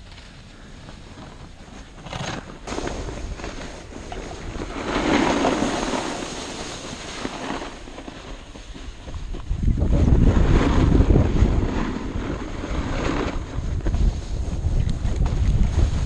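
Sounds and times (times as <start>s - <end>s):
skis scraping over snow: 0.0s - 16.0s
wind rushing over microphone: 2.7s - 16.0s.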